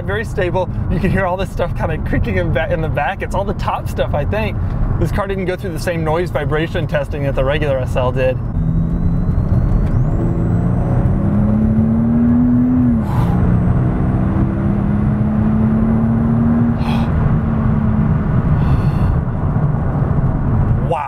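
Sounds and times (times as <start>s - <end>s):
tyre and road noise: 0.0s - 21.0s
car engine accelerating: 6.3s - 20.9s.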